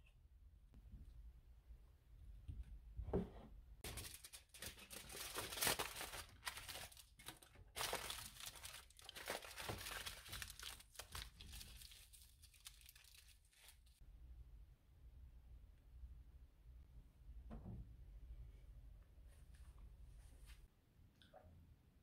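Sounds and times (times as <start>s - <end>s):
aluminium foil crinkling: 3.8s - 14.0s.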